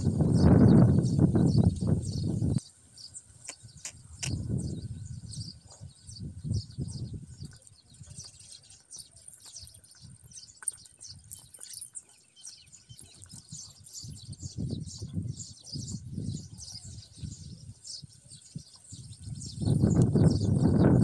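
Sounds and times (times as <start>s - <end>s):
low wind rumble on microphone: 0.0s - 8.3s, 13.0s - 21.0s
small birds chirping: 0.0s - 21.0s.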